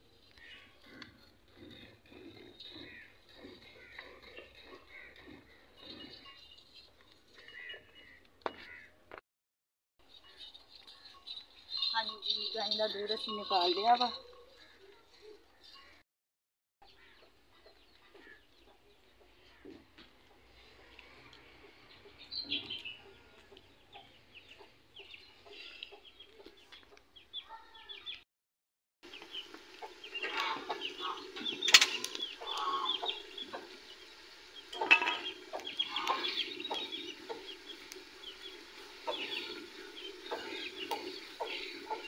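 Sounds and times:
chickens clucking: 0.8s - 6.4s, 17.2s - 27.2s, 29.1s - 42.0s.

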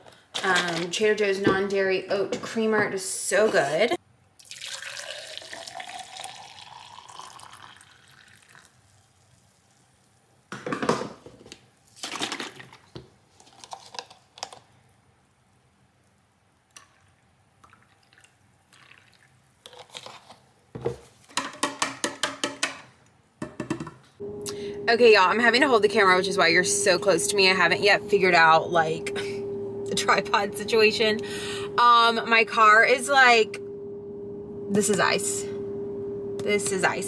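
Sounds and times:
liquid pouring into a cup: 4.4s - 9.8s, 16.8s - 19.8s.

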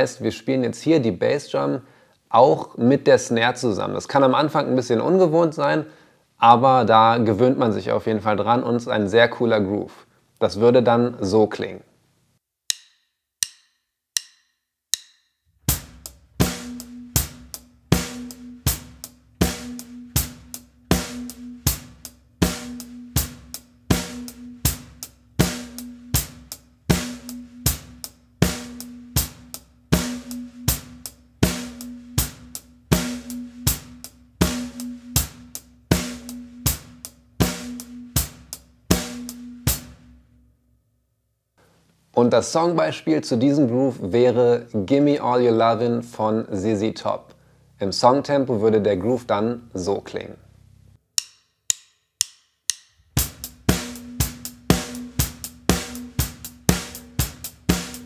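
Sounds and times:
acoustic drum kit groove: 15.6s - 40.3s, 52.7s - 58.0s.

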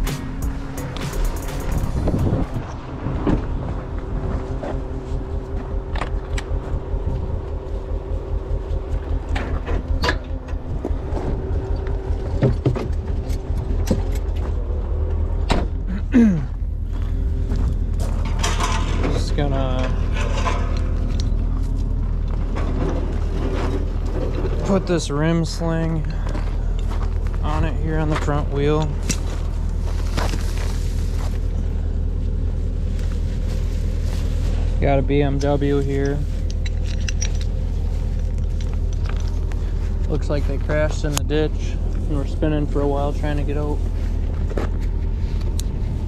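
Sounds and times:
diesel truck idling: 0.0s - 46.0s
footsteps on gravel: 16.6s - 18.5s, 25.8s - 31.8s, 37.5s - 41.1s.

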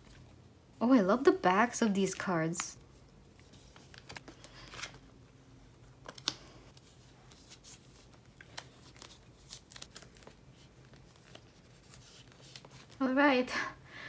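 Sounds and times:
plastic binder pages rustling: 2.1s - 5.2s, 5.8s - 13.0s.

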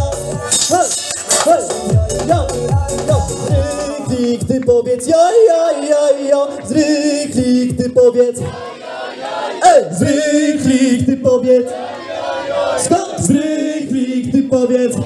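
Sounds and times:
crowd singing along: 0.0s - 4.5s, 5.1s - 15.0s
live dance music: 0.0s - 8.8s.

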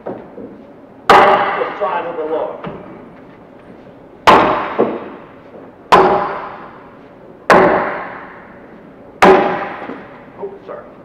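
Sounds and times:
axe chopping log: 1.1s - 1.6s, 4.3s - 5.2s, 5.9s - 6.6s, 7.5s - 8.4s, 9.2s - 10.1s.

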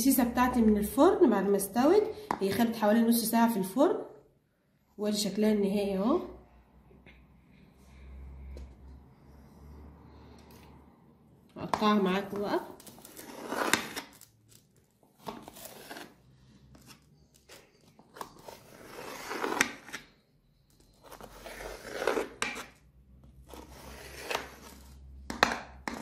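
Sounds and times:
knife scraping through cake: 15.3s - 20.1s, 20.9s - 22.8s, 23.4s - 25.0s.

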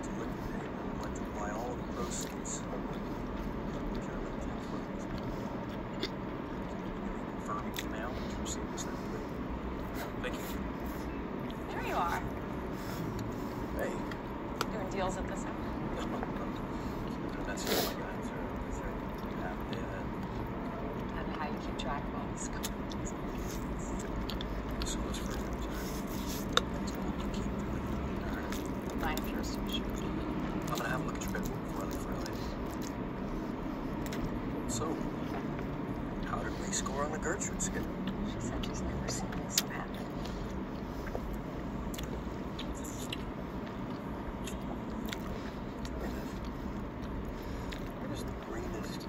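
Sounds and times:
low background hum: 0.0s - 49.0s
chewing noodles: 0.2s - 14.7s, 15.6s - 21.2s, 22.5s - 49.0s
mouth clicks and smacks: 2.0s - 9.0s, 22.5s - 33.2s, 33.9s - 34.5s, 37.7s - 48.5s.

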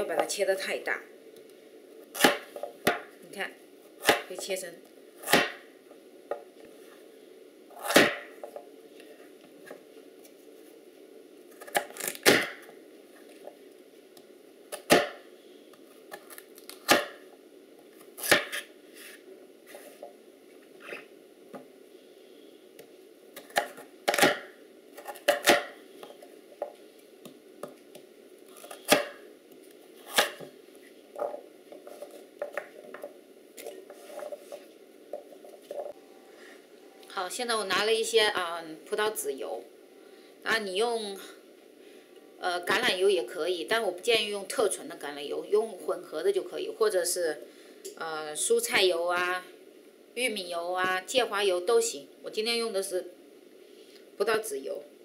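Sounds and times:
faint steady hum: 0.0s - 55.0s
knife chopping on wooden board: 5.3s - 5.6s.

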